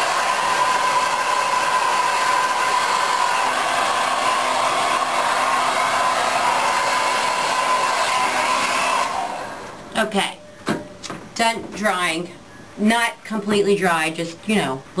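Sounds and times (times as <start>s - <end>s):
hair dryer blowing air: 0.0s - 9.9s.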